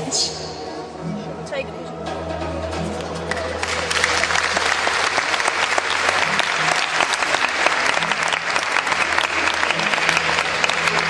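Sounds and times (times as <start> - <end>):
audience applause: 3.2 - 11.0.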